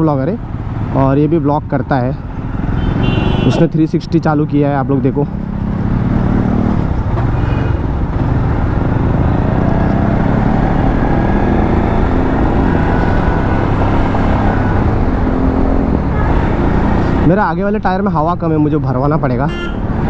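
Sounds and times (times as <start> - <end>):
road noise: 0.0 - 20.0
motorcycle engine: 2.2 - 3.6, 4.8 - 17.4.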